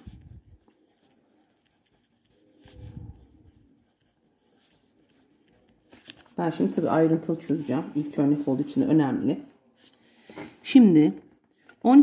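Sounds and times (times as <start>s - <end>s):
pen scratching on paper: 0.0s - 6.6s.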